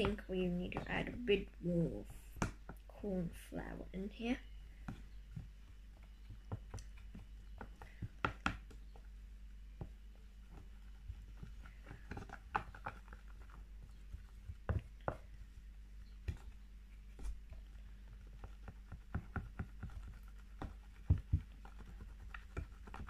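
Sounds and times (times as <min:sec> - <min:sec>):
slime being stirred clicking: 0:04.7 - 0:09.0, 0:17.6 - 0:23.0.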